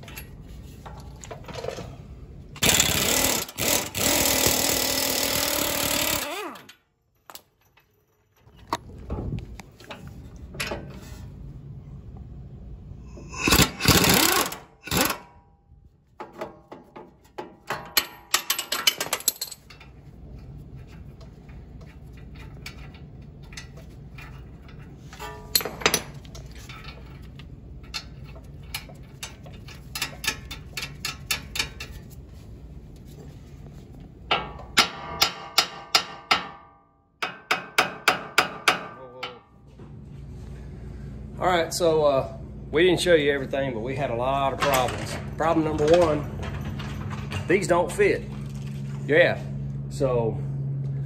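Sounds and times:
loud tool burst: 2.6 - 6.6, 13.2 - 15.4
steady low hum: 6.8 - 35.8, 38.2 - 51.0.

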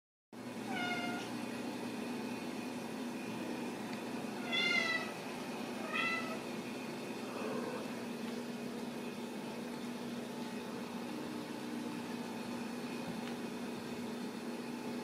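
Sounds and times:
low room hum: 0.4 - 15.0
kittens meowing: 4.4 - 5.2, 5.8 - 6.4.

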